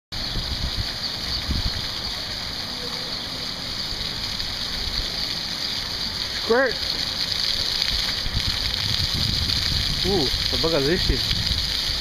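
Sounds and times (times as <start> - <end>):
fountain jets splashing on pavement: 0.1 - 12.0
low rumbling: 3.4 - 12.0.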